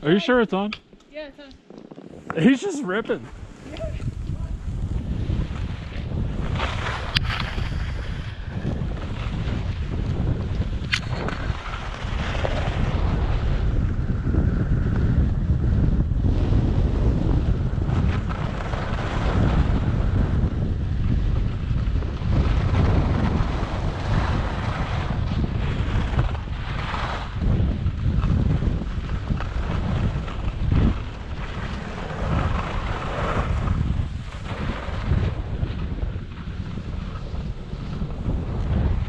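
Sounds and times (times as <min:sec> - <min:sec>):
wind rushing over microphone: 0:00.0 - 0:39.0
skis sliding on snow: 0:01.9 - 0:13.7, 0:21.3 - 0:39.0.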